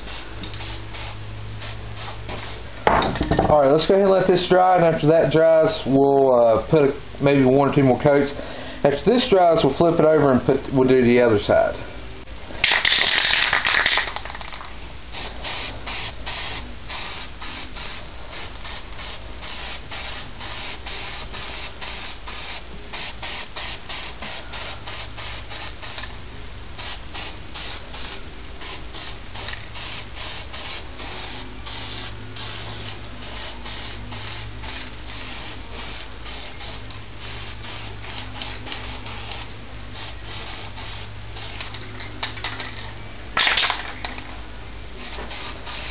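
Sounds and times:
spray paint can hissing: 0:00.0 - 0:02.6, 0:12.6 - 0:26.1, 0:26.8 - 0:42.3, 0:45.0 - 0:45.9.

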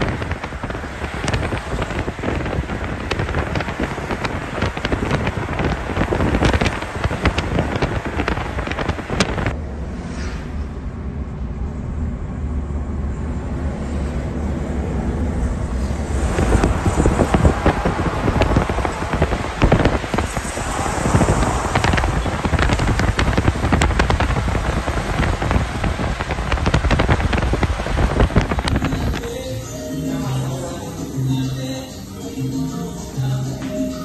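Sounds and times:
crackling rush with clicks: 0:00.0 - 0:10.7, 0:14.4 - 0:29.8
car engine and road rumble: 0:00.0 - 0:34.0.

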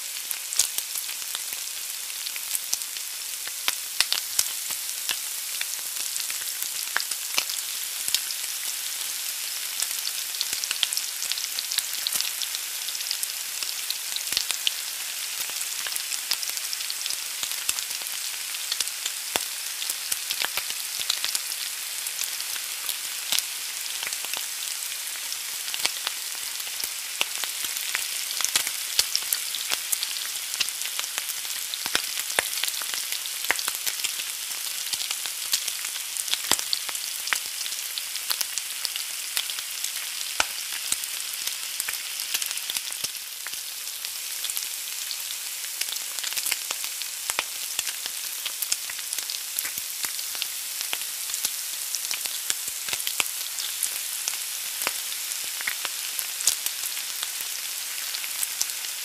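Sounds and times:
egg sizzling in a pan: 0:00.0 - 0:59.0.

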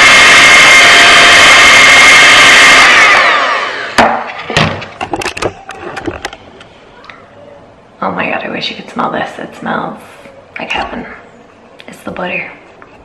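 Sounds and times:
electric hand mixer whining: 0:00.0 - 0:04.0.

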